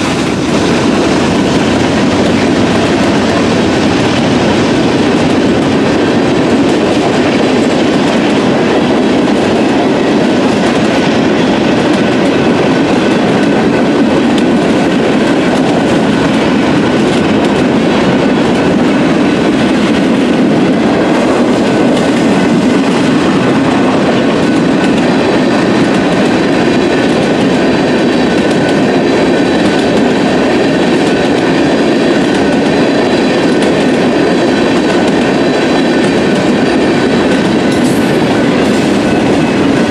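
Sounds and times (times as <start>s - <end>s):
train wheels rattling over rails: 0.0s - 39.9s.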